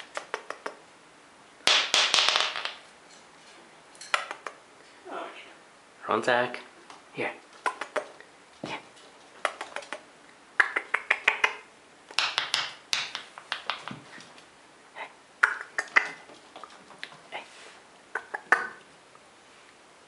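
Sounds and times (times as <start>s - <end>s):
person making sharp clicks: 0.0s - 0.8s, 4.0s - 4.6s, 7.6s - 8.2s, 9.4s - 14.0s, 15.4s - 16.2s, 18.1s - 18.9s.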